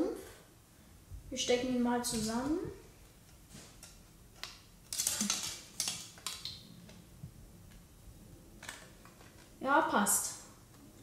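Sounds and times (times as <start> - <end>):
plastic parts clicking together: 3.8 - 7.0.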